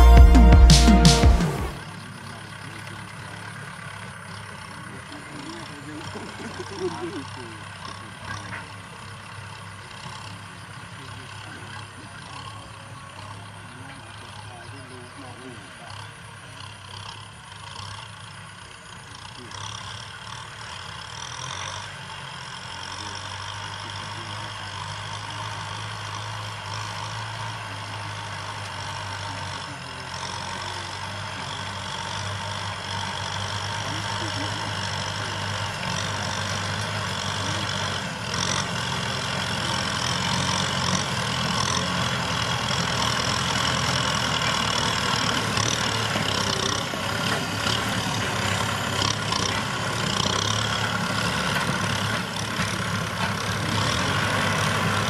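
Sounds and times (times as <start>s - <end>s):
tractor diesel engines: 0.0s - 55.0s.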